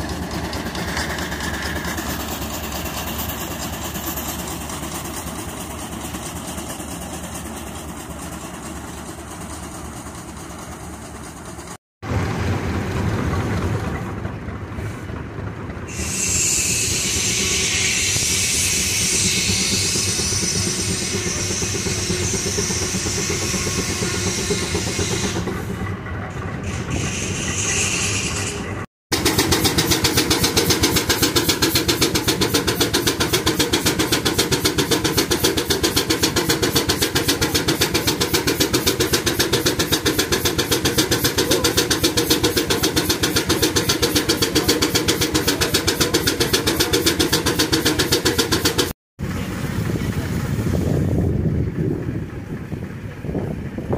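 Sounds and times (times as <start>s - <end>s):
steam engine exhaust chuffing: 0.0s - 53.9s
steady hiss of steam: 15.9s - 25.5s, 29.2s - 53.2s.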